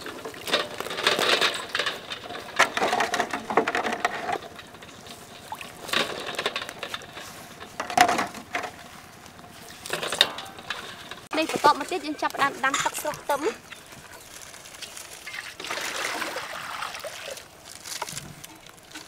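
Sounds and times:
water splashing: 0.0 - 7.3, 13.1 - 18.0
eggs clattering against metal: 9.9 - 12.0.

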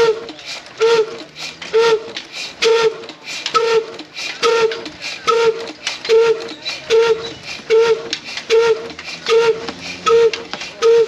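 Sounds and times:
slow diesel engine exhaust pops: 0.0 - 11.0.

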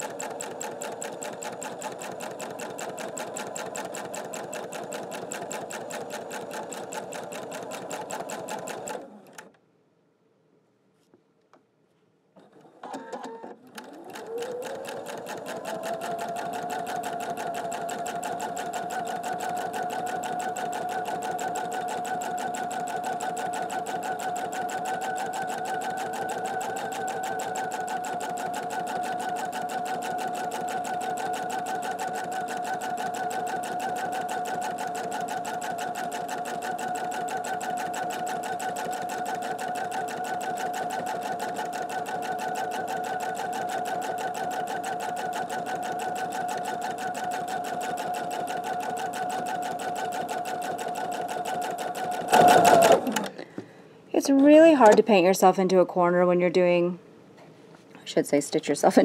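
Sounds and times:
sewing machine running: 0.0 - 9.4, 12.9 - 53.4.

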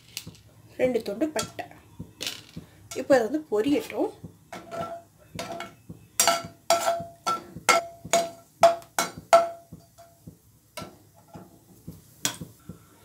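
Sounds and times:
metal ladle tapping on pan: 1.4 - 1.7, 4.5 - 12.8.

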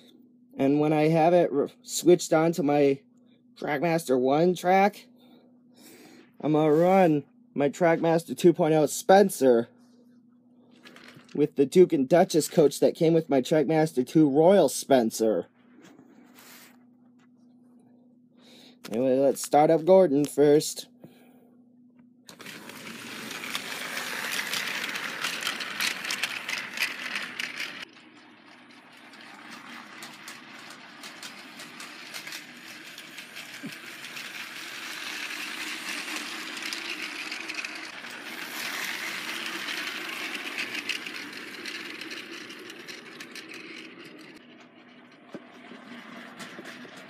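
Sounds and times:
toy train motor whir: 22.3 - 47.0
wheels clicking and rattling: 22.3 - 47.0.

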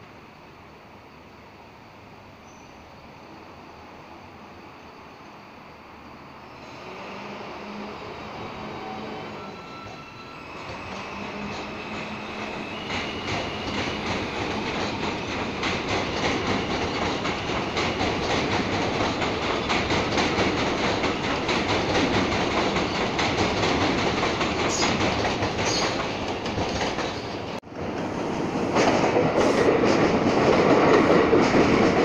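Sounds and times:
approaching train clatter: 6.5 - 32.0
train wheels clickety-clack: 8.8 - 32.0.

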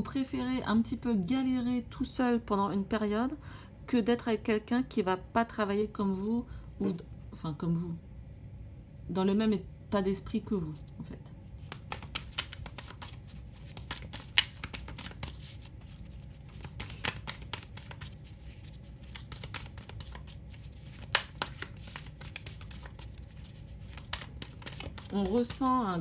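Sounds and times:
low room rumble: 0.0 - 26.0
cards shuffled by hand: 11.6 - 26.0.

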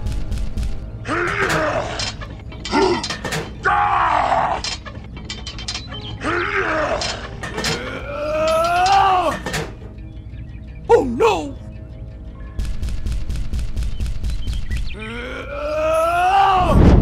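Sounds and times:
background music with steady beat: 0.0 - 1.8, 7.5 - 15.0
person grunting with strain: 15.0 - 16.8.

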